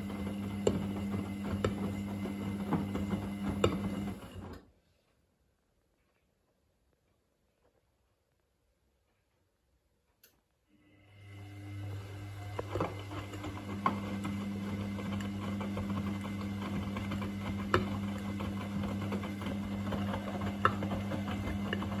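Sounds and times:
washing machine drum motor humming: 0.0 - 4.6, 11.0 - 22.0.

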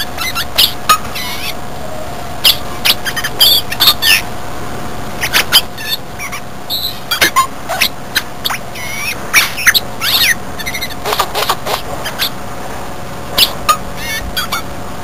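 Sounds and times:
bird squeaky chirps and clicks: 0.0 - 1.6, 2.4 - 4.2, 5.2 - 12.4, 13.4 - 14.6.

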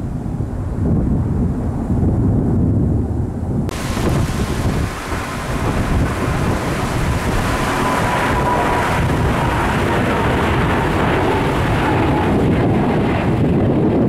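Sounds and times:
jet engines roaring at takeoff: 3.2 - 14.0.

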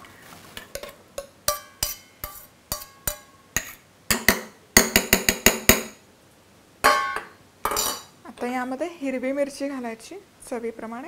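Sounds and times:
metal spoon tapping steel bowls: 0.7 - 6.0, 6.8 - 8.1.

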